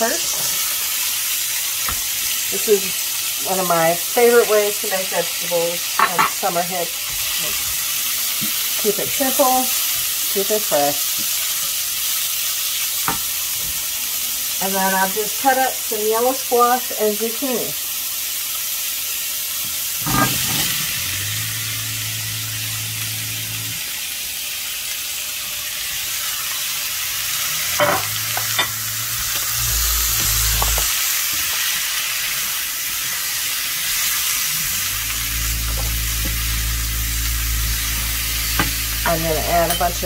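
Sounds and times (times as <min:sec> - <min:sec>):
vegetables sizzling in oil: 0:00.0 - 0:40.0
low hum: 0:20.0 - 0:23.8, 0:34.5 - 0:40.0.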